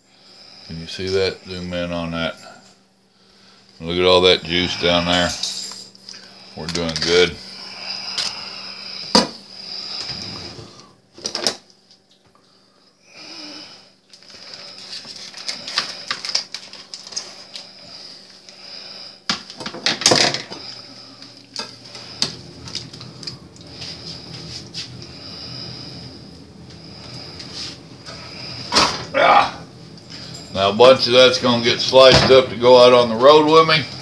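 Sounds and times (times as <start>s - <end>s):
aluminium foil crinkling: 14.1s - 18.4s.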